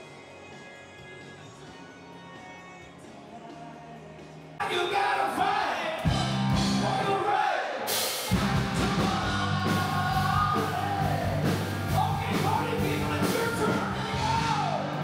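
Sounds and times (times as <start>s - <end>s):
drums: 0.0s - 15.0s
person singing: 1.7s - 15.0s
electric guitars: 6.0s - 7.1s, 8.3s - 15.0s
bass guitar: 6.1s - 7.1s, 8.3s - 15.0s.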